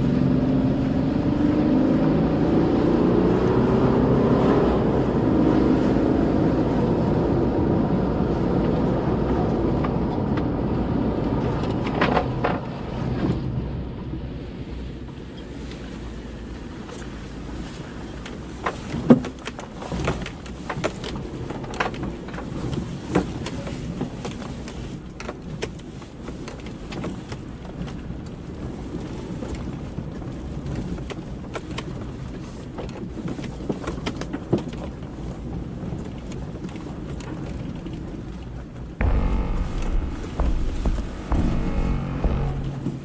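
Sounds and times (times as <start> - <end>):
vehicle knocks and rattles: 39.0 - 43.0
vehicle rumbling on dirt track: 39.0 - 43.0.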